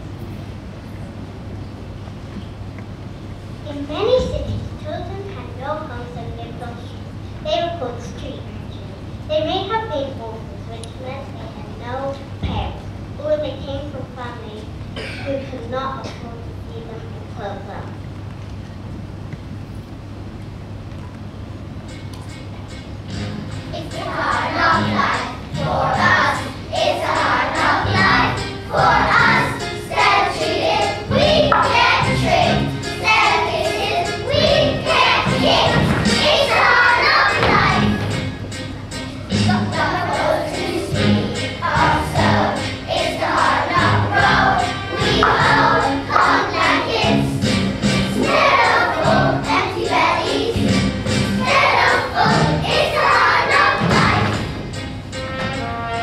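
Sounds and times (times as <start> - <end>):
instrumental accompaniment: 21.4 - 56.0
children singing: 23.8 - 38.3, 39.3 - 47.4, 48.0 - 54.6.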